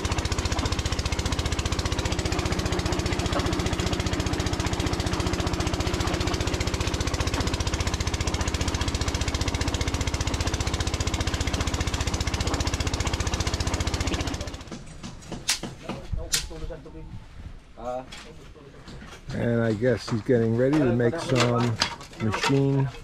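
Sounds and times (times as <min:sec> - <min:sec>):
small engine pulsing: 0:00.0 - 0:14.7.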